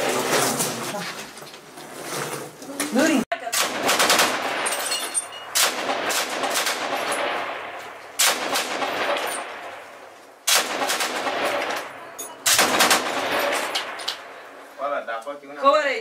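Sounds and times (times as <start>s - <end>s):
automatic gunfire: 3.4s - 4.8s, 5.5s - 9.8s, 10.4s - 14.3s
gunfire echo: 3.5s - 14.8s.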